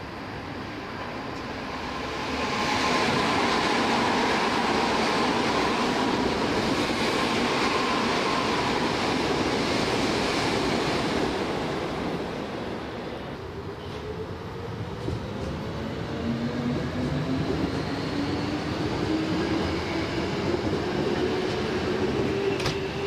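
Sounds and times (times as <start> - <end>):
electric train passing: 0.1 - 13.7.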